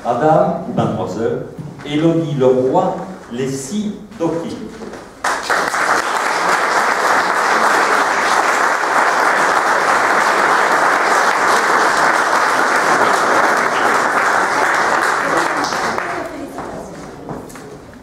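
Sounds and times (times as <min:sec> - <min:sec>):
audience applauding: 0:05.2 - 0:16.7.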